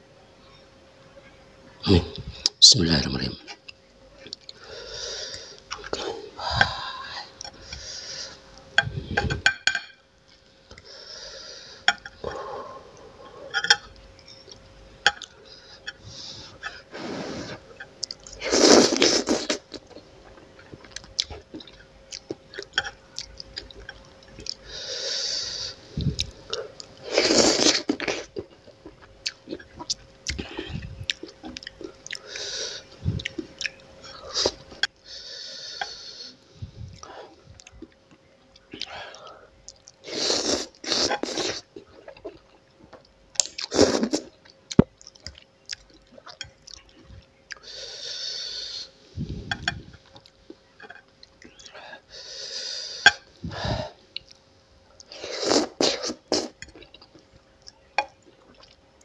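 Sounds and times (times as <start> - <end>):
loud noodle slurps: 18.4 - 19.6, 27.1 - 27.9, 40.1 - 41.6
wet chewing: 26.0 - 32.4.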